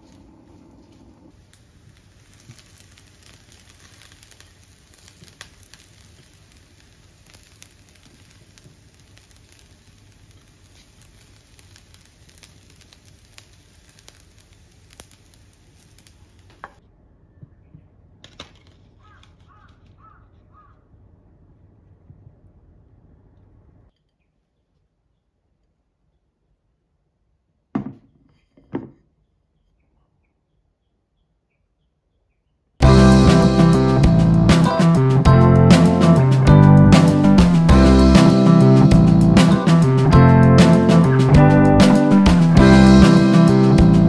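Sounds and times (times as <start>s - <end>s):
low hiss: 0.0s - 16.8s, 32.8s - 44.0s
crackling clicks: 0.9s - 16.8s, 32.9s - 44.0s.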